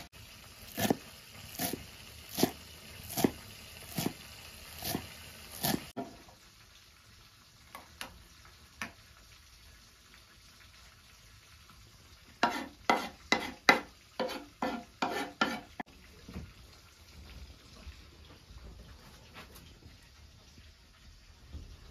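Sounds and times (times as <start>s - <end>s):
knife chopping on wooden board: 0.8s - 1.0s, 1.6s - 1.8s, 2.4s - 4.2s, 4.8s - 6.1s, 12.4s - 15.7s.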